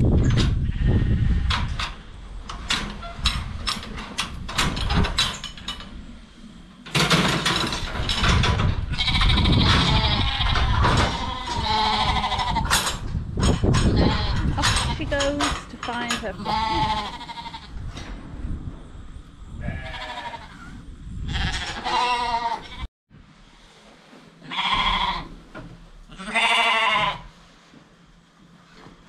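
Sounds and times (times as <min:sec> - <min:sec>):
metal gate clicks and clanks: 0:01.4 - 0:06.0, 0:06.8 - 0:11.6, 0:12.6 - 0:16.9
sheep bleating: 0:16.4 - 0:17.7, 0:21.3 - 0:22.9, 0:26.1 - 0:27.2.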